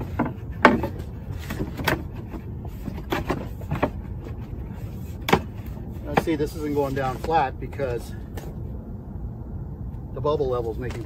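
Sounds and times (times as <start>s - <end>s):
wooden knocks: 0.0s - 4.4s, 5.2s - 6.4s.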